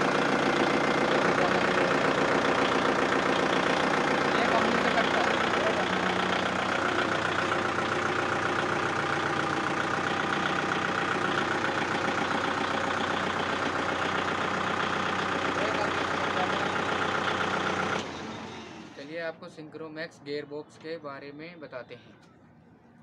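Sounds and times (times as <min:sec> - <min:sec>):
diesel tractor engine running: 0:00.0 - 0:19.3.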